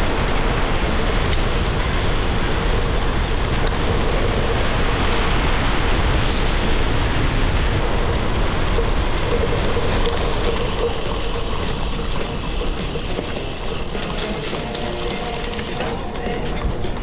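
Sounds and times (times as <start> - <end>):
bike tyres rolling on gravel: 0.0 - 17.0
wind rushing over camera: 0.0 - 17.0.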